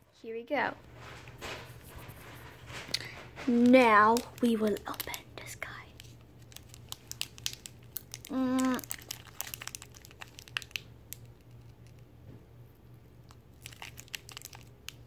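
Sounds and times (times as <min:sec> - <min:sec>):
plastic packet crinkling: 0:02.2 - 0:12.0, 0:13.3 - 0:15.0
person humming: 0:08.3 - 0:08.8.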